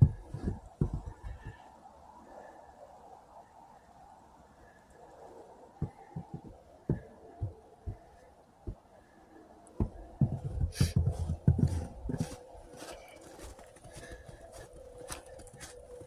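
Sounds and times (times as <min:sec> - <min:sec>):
footsteps crunching in snow: 0:09.8 - 0:16.0.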